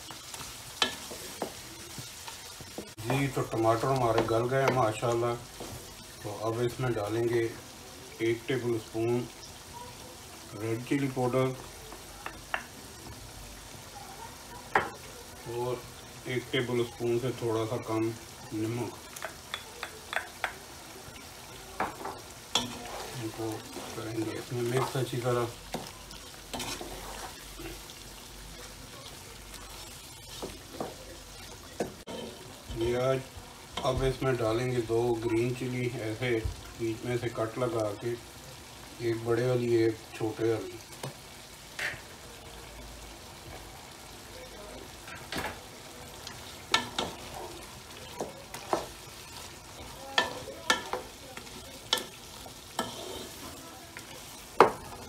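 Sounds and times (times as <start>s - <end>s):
wooden spoon stirring in pot: 0.0s - 34.7s, 44.8s - 55.0s
onion and tomato sizzling: 0.0s - 55.0s
wooden spoon knocking on pot: 11.9s - 12.7s, 19.2s - 20.6s.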